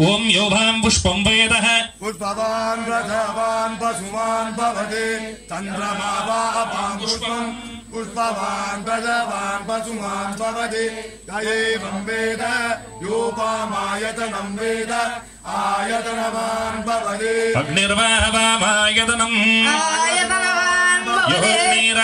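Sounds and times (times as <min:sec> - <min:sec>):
man chanting into a microphone: 0:17.0 - 0:22.0.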